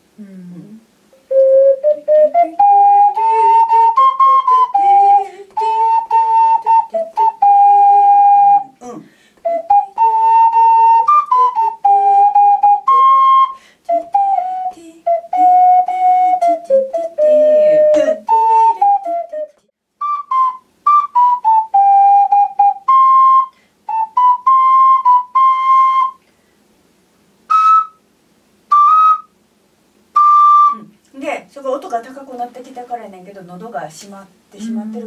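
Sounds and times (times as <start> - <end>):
ocarina playing staccato melody: 1.2 - 8.8, 9.4 - 26.2, 27.5 - 28.0, 28.7 - 29.3, 30.1 - 30.9.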